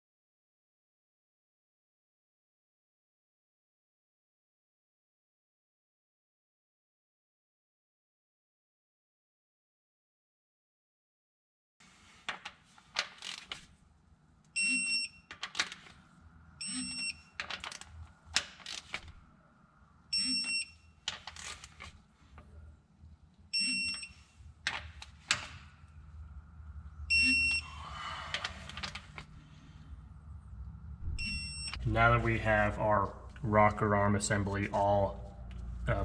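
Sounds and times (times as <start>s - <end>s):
torque wrench short beeps: 14.6s - 15.3s, 16.6s - 17.3s, 20.1s - 20.8s, 23.5s - 24.2s, 27.1s - 27.8s, 31.2s - 31.8s.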